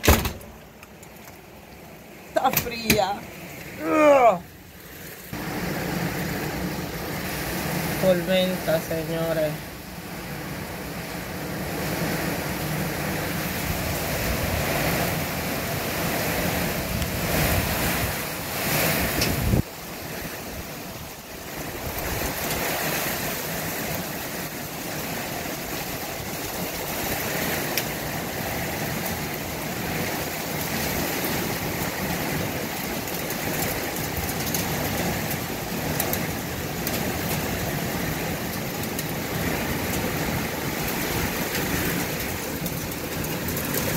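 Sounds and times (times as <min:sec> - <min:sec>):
torrential rain with hail: 0:00.0 - 0:43.9.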